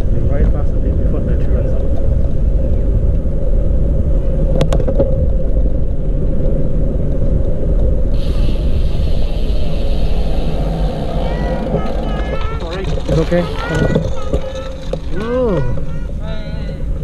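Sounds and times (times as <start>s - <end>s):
wind buffeting microphone: 0.0s - 17.0s
high hiss: 8.2s - 12.2s.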